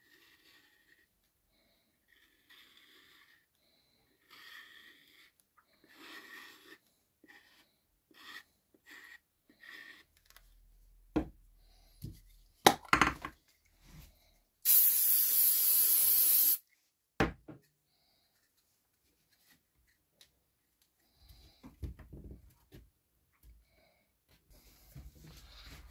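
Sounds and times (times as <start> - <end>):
objects knocking on workbench: 12.7 - 13.4, 17.2 - 17.6
aerosol can spraying: 14.6 - 16.6
glue bottle squirts: 14.6 - 16.6.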